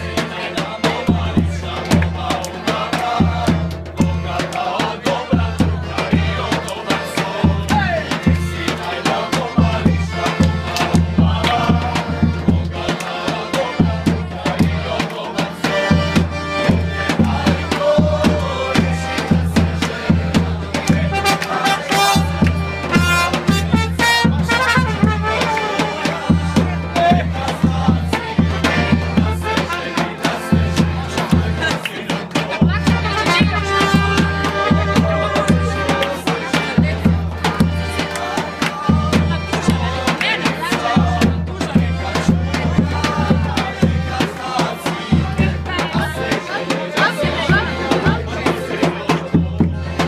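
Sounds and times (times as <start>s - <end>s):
accordion: 0.0s - 50.0s
brass band dance music: 15.8s - 50.0s
saxophone: 20.9s - 26.3s, 32.9s - 36.4s
trumpet: 21.0s - 26.3s, 33.0s - 36.2s.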